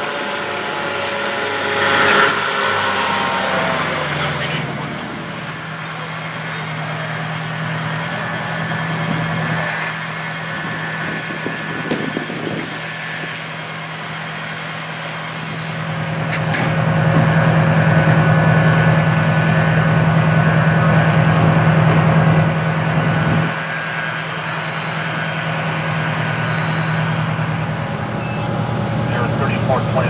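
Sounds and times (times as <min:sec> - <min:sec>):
large engine droning: 0:00.0 - 0:30.0.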